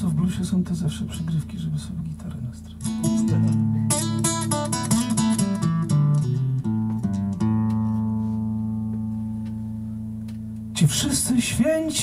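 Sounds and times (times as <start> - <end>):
acoustic guitar: 2.6 - 11.0.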